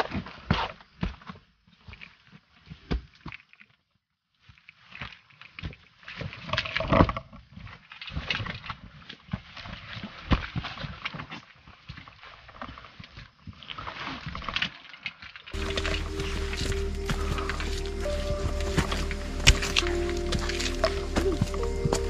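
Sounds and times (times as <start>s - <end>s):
footsteps on dirt trail: 15.6s - 22.0s
leaves and backpack gear rustling: 15.6s - 22.0s.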